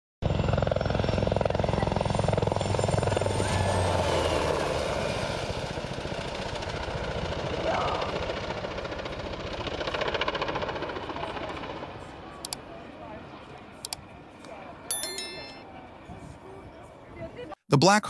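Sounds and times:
helicopter rotor chopping: 0.3s - 12.6s.

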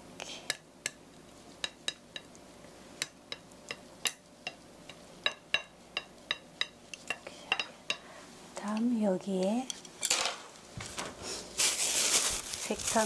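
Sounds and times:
chopsticks tapping ceramic plate: 1.6s - 2.4s, 3.0s - 8.0s.

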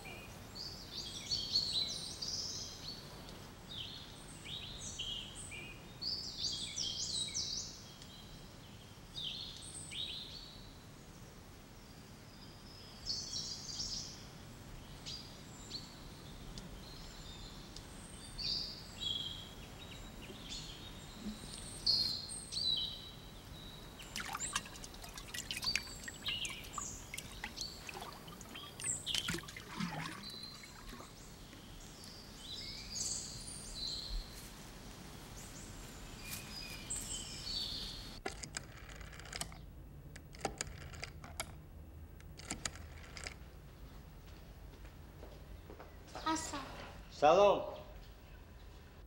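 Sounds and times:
small birds chirping: 0.0s - 38.2s, 45.4s - 48.7s
sharp clicks: 42.2s - 43.4s.

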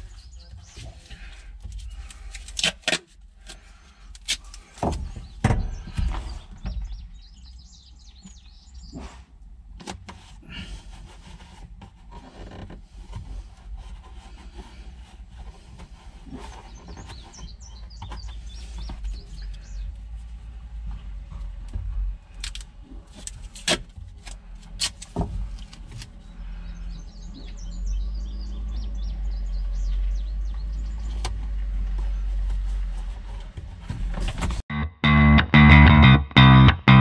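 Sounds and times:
birds chirping: 0.0s - 1.3s, 5.0s - 9.2s, 16.3s - 20.1s, 26.2s - 32.3s
duct tape handling clicks and rustles: 1.7s - 4.6s, 22.4s - 26.1s.

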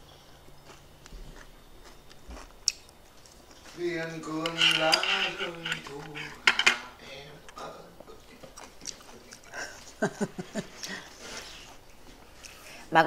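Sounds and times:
chopsticks clacking on plate: 4.3s - 6.9s.

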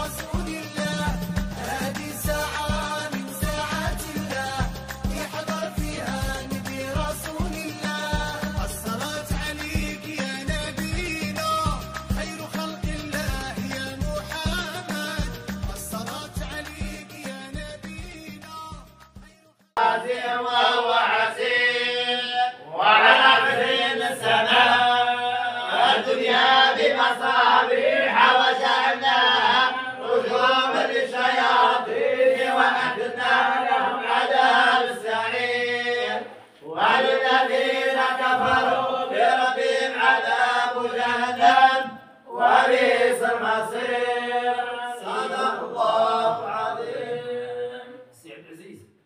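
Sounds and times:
group chanting in unison: 0.0s - 9.5s, 19.8s - 48.1s.

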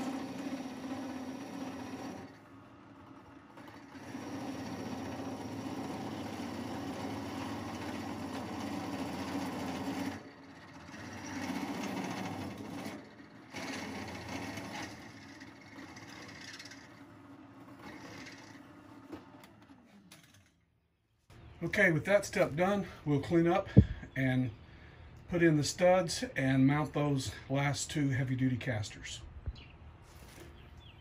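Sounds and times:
drill press cutting steel: 0.0s - 20.6s.

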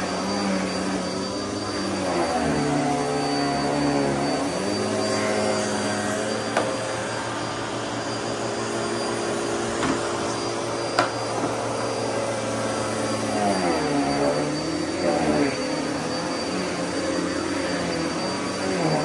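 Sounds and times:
vacuum cleaner motor hum: 0.0s - 19.0s.

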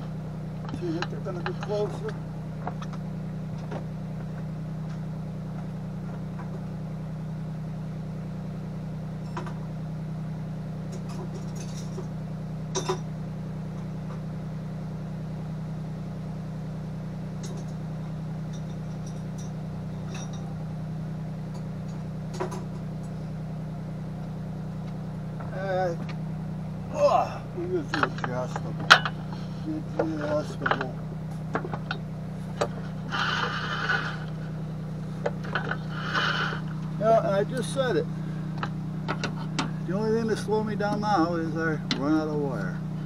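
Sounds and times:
welder humming: 0.0s - 43.0s
light metallic clinks: 18.5s - 20.6s.

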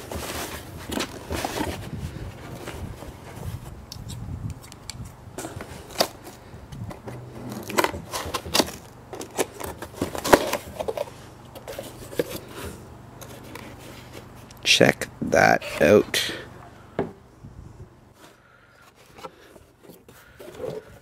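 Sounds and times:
cardboard carton being opened: 0.0s - 3.8s, 5.4s - 14.3s, 18.8s - 21.0s.

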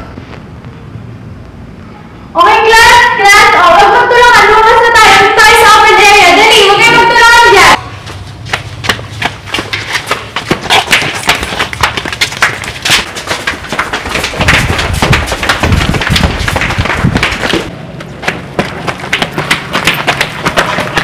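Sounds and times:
clatter of knocks and thumps: 8.5s - 21.0s.

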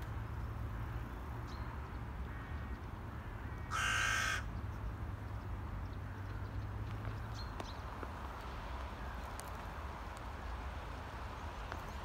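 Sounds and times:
crow cawing: 2.3s - 4.5s.

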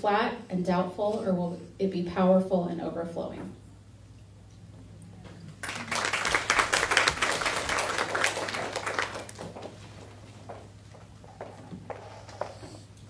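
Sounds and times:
audience applauding: 5.6s - 9.8s.

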